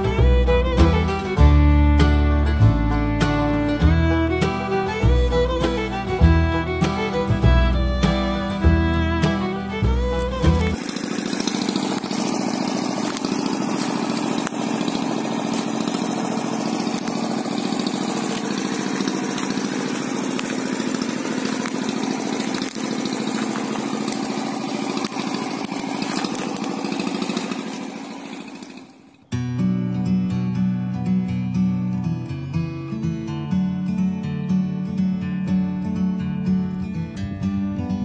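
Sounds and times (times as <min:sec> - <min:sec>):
small boat engine running: 0:00.0 - 0:29.3.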